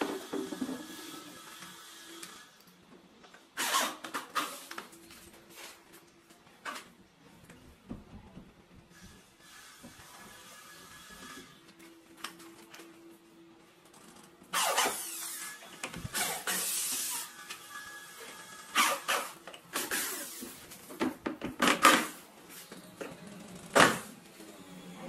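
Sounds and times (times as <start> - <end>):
electric drill driving screws: 14.5 - 20.5.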